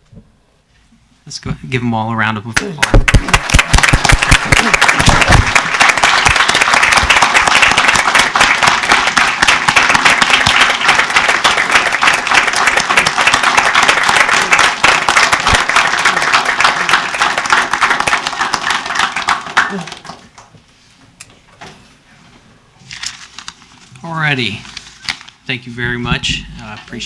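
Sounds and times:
crowd applauding: 0:02.8 - 0:20.4.

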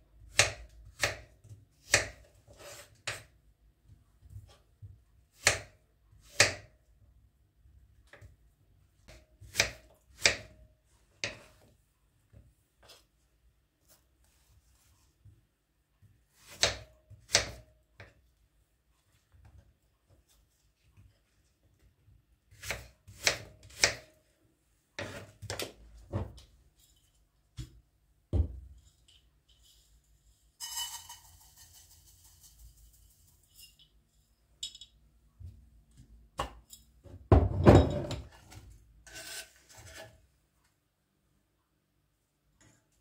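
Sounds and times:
rubbing and scraping strokes: 0:39.0 - 0:40.2.

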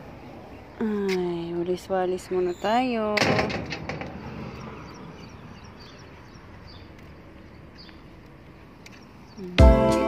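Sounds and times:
distant traffic hum: 0:00.0 - 0:09.6
faint bird chirps: 0:08.9 - 0:09.6.

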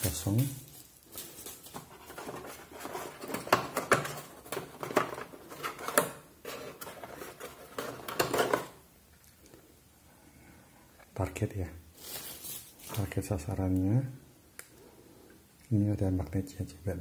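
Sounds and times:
rustling: 0:00.0 - 0:08.8, 0:11.9 - 0:13.3.

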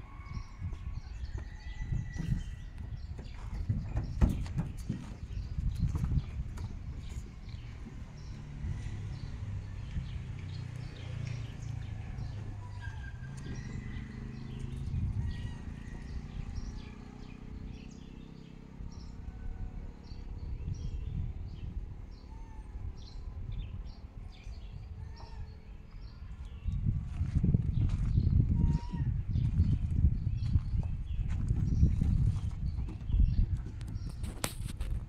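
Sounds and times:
low steady rumble: 0:00.0 - 0:34.2
small birds chirping: 0:00.4 - 0:19.3, 0:20.0 - 0:34.9.

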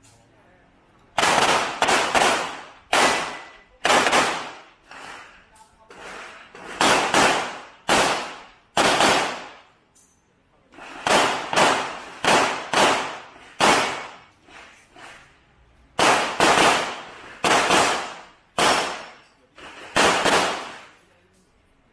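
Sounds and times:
handgun shots echoing: 0:01.2 - 0:04.6, 0:06.8 - 0:09.7, 0:11.0 - 0:14.2, 0:16.0 - 0:19.2, 0:19.9 - 0:21.0.

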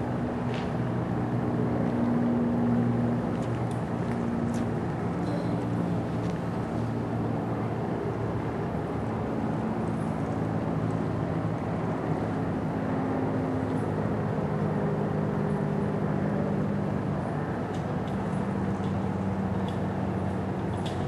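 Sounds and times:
low mechanical drone: 0:00.0 - 0:21.0.

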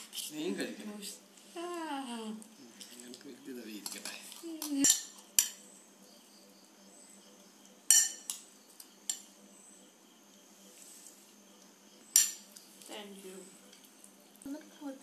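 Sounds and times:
metal spoons clinking on plates: 0:04.8 - 0:05.6, 0:07.9 - 0:08.4, 0:12.1 - 0:12.4.

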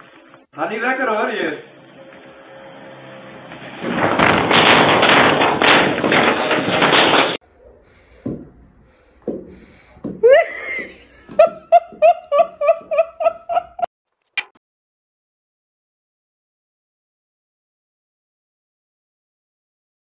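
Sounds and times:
loud crashing clatter: 0:03.5 - 0:07.4.

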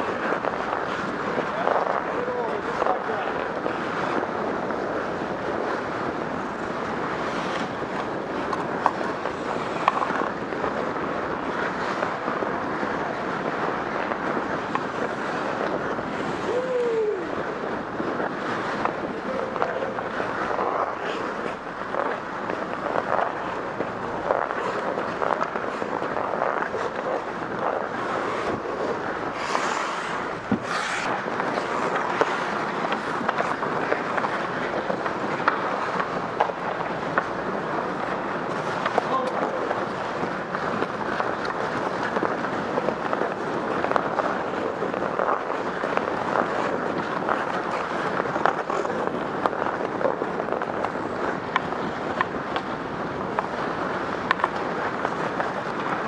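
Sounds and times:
sticks and pucks clacking: 0:00.0 - 0:03.8, 0:07.4 - 0:10.8, 0:18.7 - 0:52.7, 0:54.2 - 0:56.0
ice skates rushing on rink: 0:00.0 - 0:56.0
wind noise on microphone: 0:00.0 - 0:56.0.

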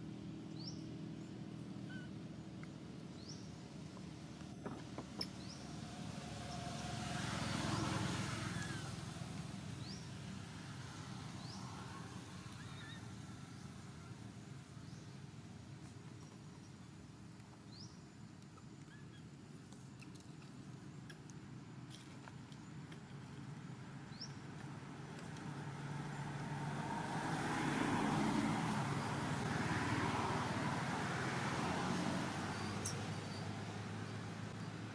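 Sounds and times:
passing vehicle engine and tyres: 0:00.0 - 0:15.8, 0:23.5 - 0:34.9.

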